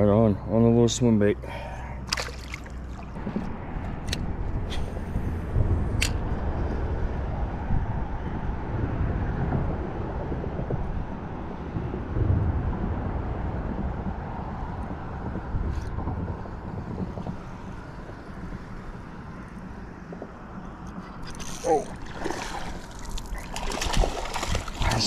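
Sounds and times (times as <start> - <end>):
flowing water: 1.5 - 3.2, 21.1 - 25.0
fish splashing into water: 2.0 - 3.2, 21.3 - 25.0
wind on microphone: 3.0 - 25.0.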